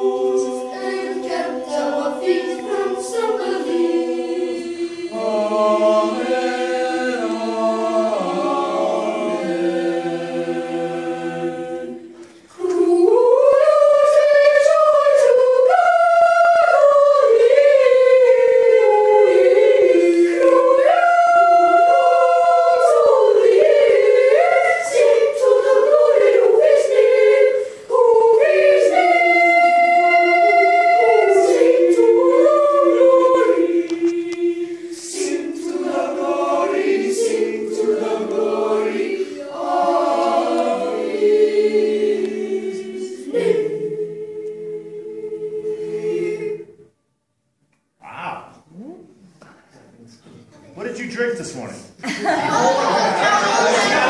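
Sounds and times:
boys' choir singing: 0.0s - 46.9s, 52.1s - 54.0s.

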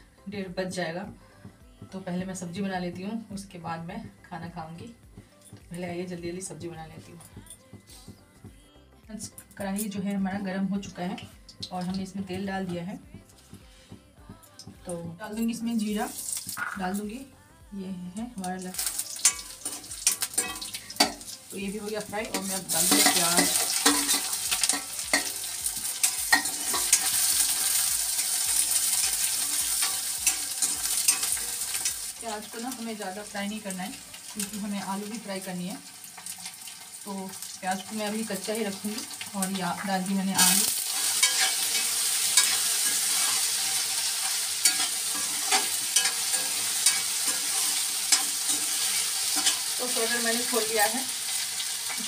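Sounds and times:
onions sizzling in oil: 15.5s - 17.0s, 18.5s - 52.0s
metal spatula scraping pan: 19.2s - 21.2s, 22.3s - 27.8s, 28.6s - 32.1s, 40.4s - 49.8s.

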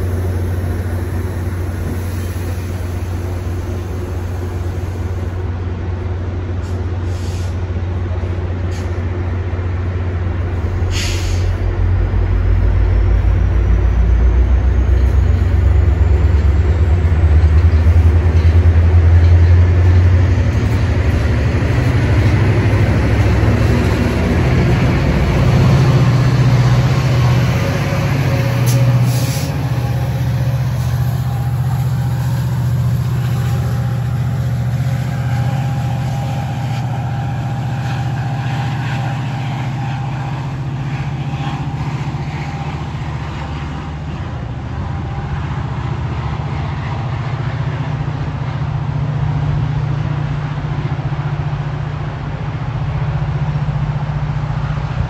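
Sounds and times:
diesel locomotive engine drone: 0.0s - 55.0s
short sharp hiss: 6.6s - 7.6s, 10.9s - 11.6s, 28.6s - 29.7s.

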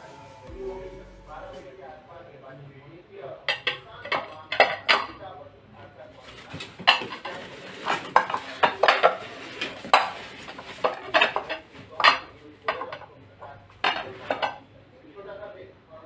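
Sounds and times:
glass bowls clinking: 3.5s - 5.2s, 6.8s - 13.1s, 13.8s - 14.6s.

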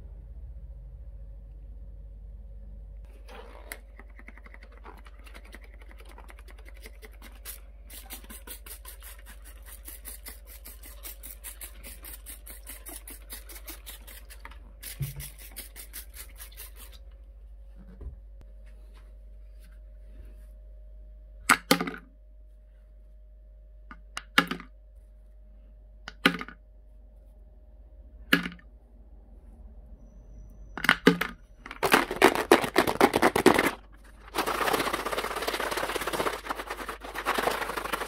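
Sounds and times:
spray bottle hissing: 7.5s - 16.9s.

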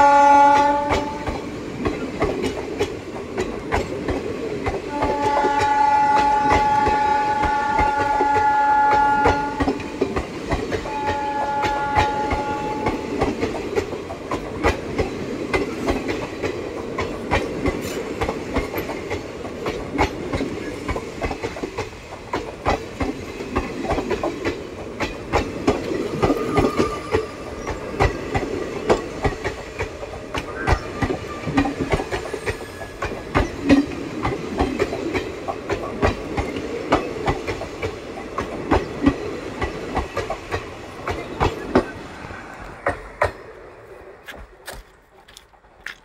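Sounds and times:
train rumble: 0.0s - 46.0s
train wheels clattering over joints: 9.0s - 42.0s.

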